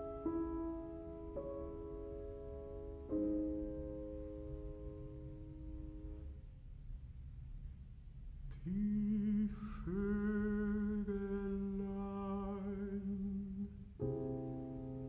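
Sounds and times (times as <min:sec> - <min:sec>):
classical singer singing: 0:08.5 - 0:14.0.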